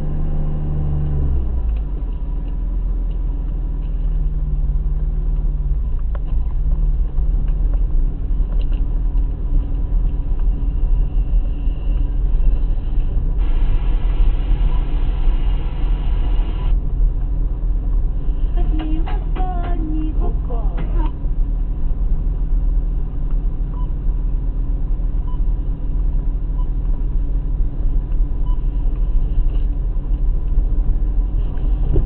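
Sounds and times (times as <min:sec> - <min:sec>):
tyres rumbling on dirt track: 0:00.0 - 0:15.4
car engine at low revs: 0:00.0 - 0:32.0.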